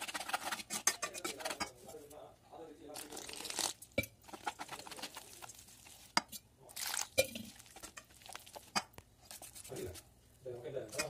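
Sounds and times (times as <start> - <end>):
whisk clinking against bowl: 0.0 - 1.9
whisk stirring batter: 0.0 - 2.2, 2.9 - 10.2, 10.8 - 11.0.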